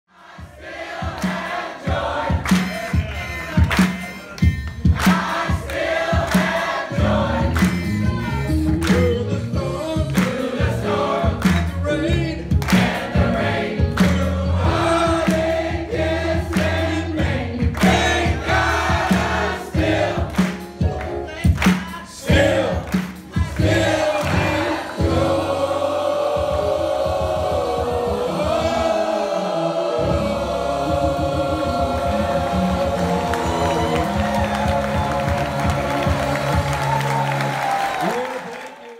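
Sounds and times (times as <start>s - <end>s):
mixed choir singing: 0.1s - 3.4s, 4.8s - 8.3s, 9.6s - 12.0s, 12.7s - 21.2s, 21.9s - 37.8s
hand claps on the beat: 1.2s - 1.6s, 2.3s - 6.8s, 7.5s - 8.0s, 8.6s - 9.2s, 10.1s - 10.6s, 11.4s - 11.9s, 12.5s - 13.2s, 13.9s - 14.4s, 15.2s - 15.6s, 16.5s - 16.9s, 17.7s - 19.6s, 20.2s - 24.5s, 32.7s - 38.9s.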